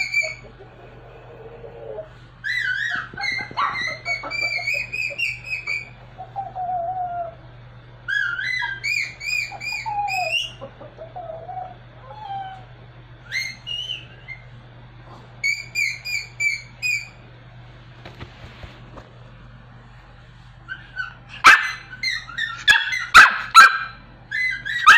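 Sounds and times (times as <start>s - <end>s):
dog howling: 0.0s - 7.5s, 8.1s - 14.0s, 20.7s - 24.9s.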